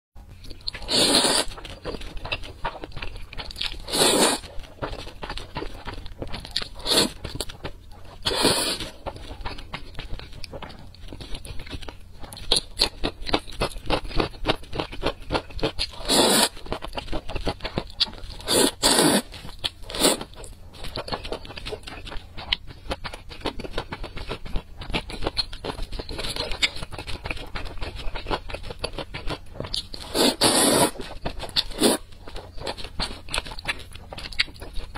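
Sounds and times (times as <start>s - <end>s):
wet chewing: 0.2s - 34.9s
loud noodle slurps: 0.8s - 1.5s, 3.9s - 4.4s, 6.8s - 7.2s, 8.3s - 8.9s, 16.0s - 16.5s, 18.4s - 19.3s, 30.1s - 31.0s.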